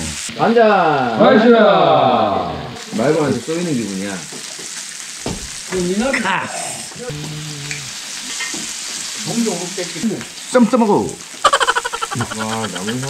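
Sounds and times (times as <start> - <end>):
meat sizzling in a grill pan: 0.0 - 13.0.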